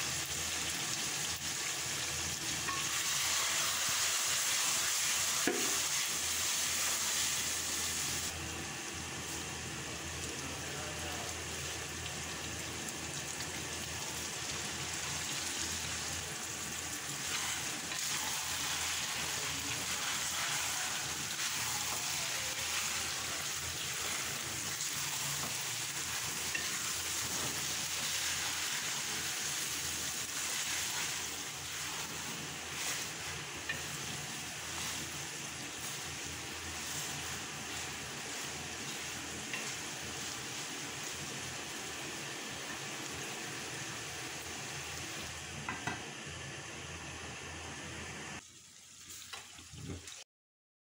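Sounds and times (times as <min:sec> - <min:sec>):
food sizzling in a wok: 0:00.0 - 0:50.2
wooden spatula scraping: 0:19.7 - 0:41.2.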